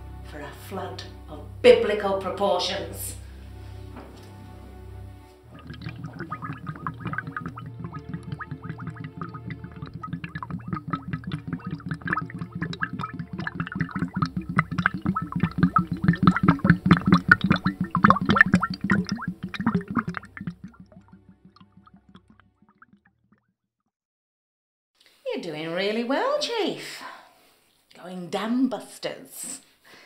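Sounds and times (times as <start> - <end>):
liquid gurgling and bubbling: 5.4 - 23.4.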